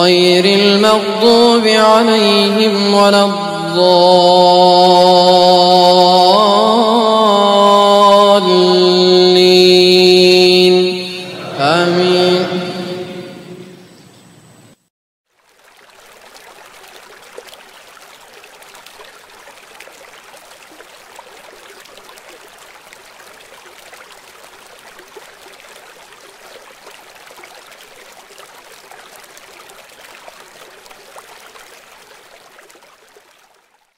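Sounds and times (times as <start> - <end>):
steady rushing water-like noise: 10.8 - 14.6, 15.4 - 33.9.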